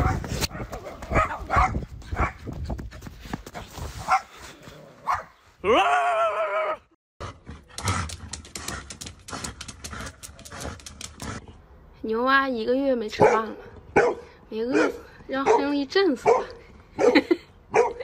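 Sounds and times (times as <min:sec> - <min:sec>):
dog barking: 0:00.0 - 0:02.4, 0:04.1 - 0:04.3, 0:05.0 - 0:05.4, 0:13.2 - 0:18.0
sharp irregular clicks and taps: 0:07.8 - 0:11.3.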